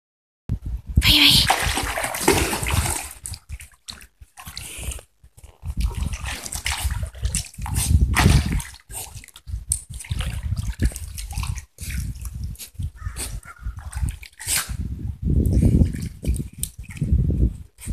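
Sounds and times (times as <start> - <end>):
dog splashing in water: 1.2 - 4.8, 5.8 - 12.2, 13.2 - 14.6.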